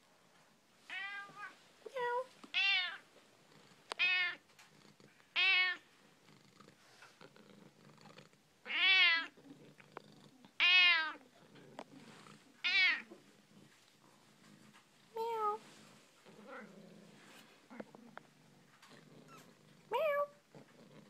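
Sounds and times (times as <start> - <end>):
cat meowing: 2.5 - 3.0, 5.4 - 5.8, 8.7 - 9.3, 10.6 - 11.2, 12.6 - 13.1.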